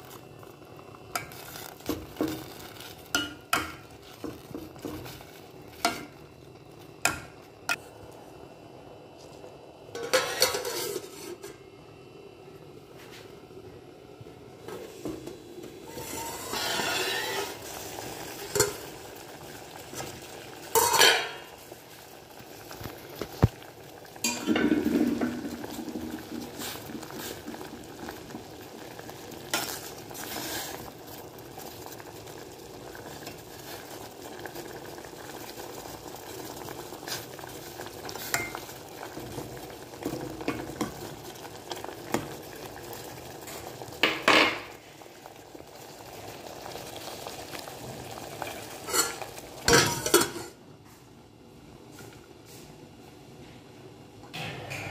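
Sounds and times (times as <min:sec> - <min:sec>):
water boiling and bubbling: 0:00.0 - 0:51.4
steel ladle clinking and scraping pot: 0:10.0 - 0:11.5, 0:15.9 - 0:17.7, 0:20.7 - 0:21.5, 0:48.8 - 0:50.6.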